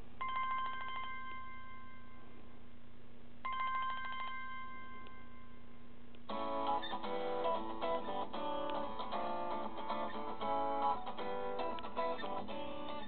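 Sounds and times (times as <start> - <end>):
phone ringtone trill: 0.2 - 2.3, 3.5 - 5.6.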